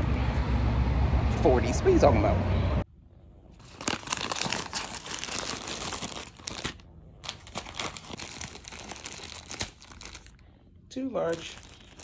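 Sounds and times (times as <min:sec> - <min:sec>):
packaging crinkling: 0:03.6 - 0:10.4, 0:11.2 - 0:12.0.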